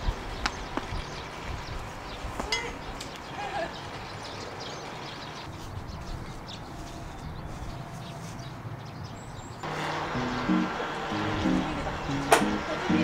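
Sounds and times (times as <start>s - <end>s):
background music: 10.0s - 13.0s.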